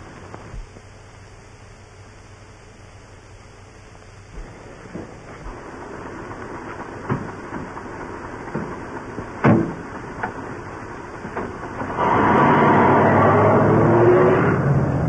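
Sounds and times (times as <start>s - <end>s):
old film soundtrack hiss: 0.0s - 15.0s
car engine starting and running: 4.4s - 15.0s.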